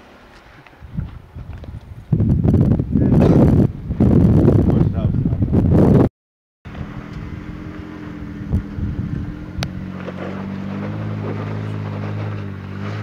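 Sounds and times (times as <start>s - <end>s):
car engine running under load: 6.7s - 13.0s.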